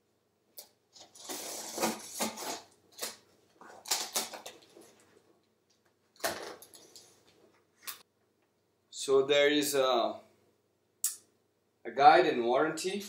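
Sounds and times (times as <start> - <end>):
scissors slitting packing tape: 1.0 - 3.2, 3.8 - 4.5.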